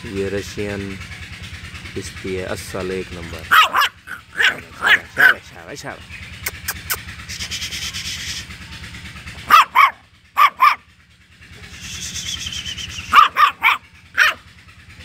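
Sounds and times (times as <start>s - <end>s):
puppy barking high-pitched: 3.5s - 5.5s, 9.4s - 10.9s, 12.9s - 14.5s.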